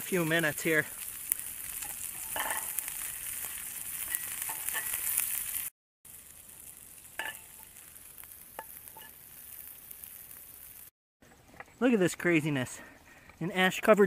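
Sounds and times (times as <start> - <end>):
meat sizzling in a frying pan: 0.0 - 10.9.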